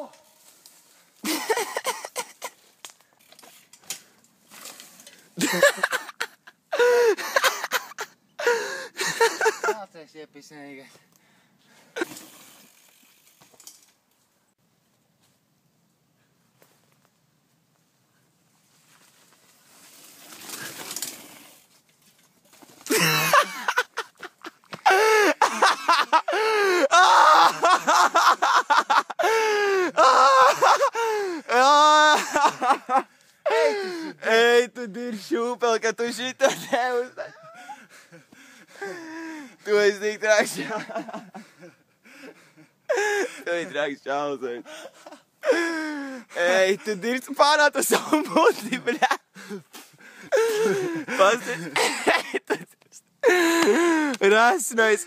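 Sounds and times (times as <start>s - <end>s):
bicycle crashing into undergrowth: 12.0s - 13.9s, 19.8s - 23.3s
man moaning loudly: 29.7s - 32.2s.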